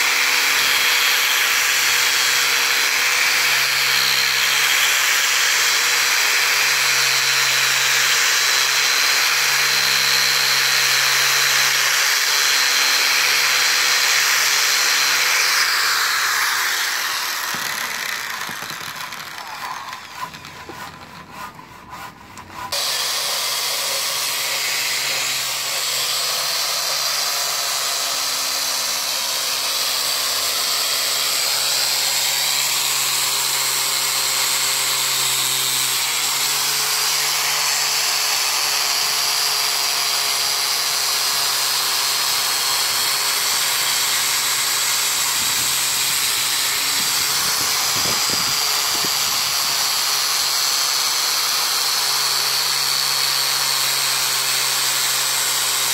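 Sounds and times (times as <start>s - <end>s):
electric sander sanding wood: 0.0s - 55.9s.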